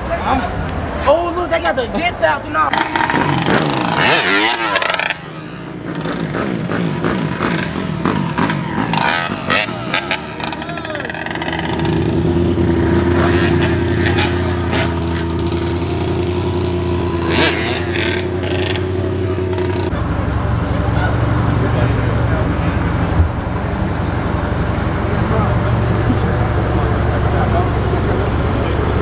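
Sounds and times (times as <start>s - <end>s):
voices: 0.0s - 29.0s
motorcycle engines revving: 1.9s - 29.0s.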